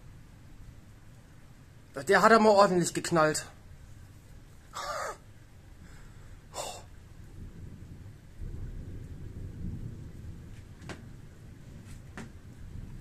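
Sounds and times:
distant thunder rumble: 4.8 - 13.0
person breathing close up: 5.8 - 6.9.

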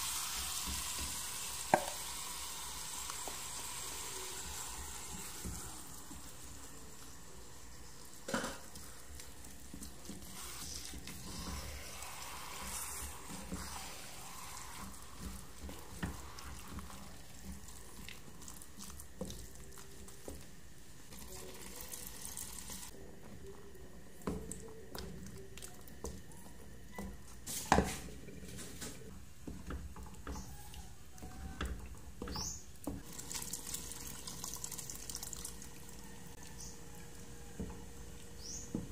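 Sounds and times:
food sizzling: 0.0 - 23.0, 27.4 - 38.9
wooden spatula scraping a clay pot: 8.8 - 20.5.

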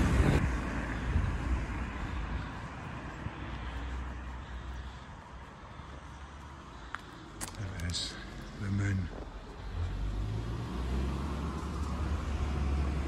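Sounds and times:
car passing on wet road: 9.6 - 13.0.

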